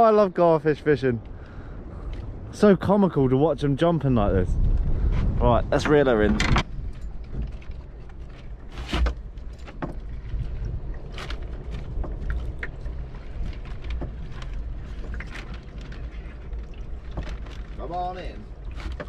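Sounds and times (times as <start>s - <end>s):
wind rumbling on microphone: 0.7s - 19.0s
water slapping boat hull: 4.7s - 19.0s.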